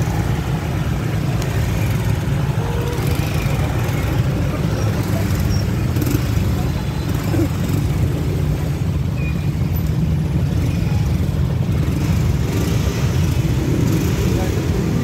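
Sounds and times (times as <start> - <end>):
motorcycle and car engines idling: 0.0 - 15.0.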